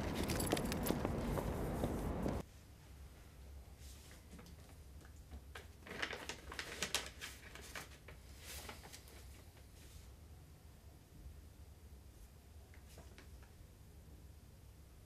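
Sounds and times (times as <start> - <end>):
faint room hum: 0.0 - 15.0
paper rustling: 4.0 - 10.1.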